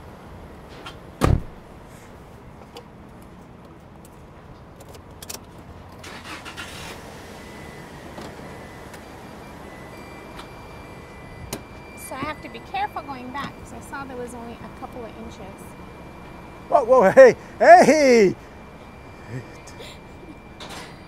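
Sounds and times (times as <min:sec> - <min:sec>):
truck door slamming: 0:01.2 - 0:01.6
steady low hum: 0:08.6 - 0:21.0.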